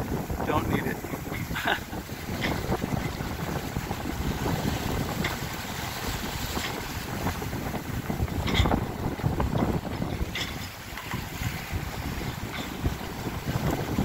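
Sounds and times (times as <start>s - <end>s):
waves rushing along hull: 0.0s - 14.0s
wind buffeting microphone: 0.0s - 14.0s.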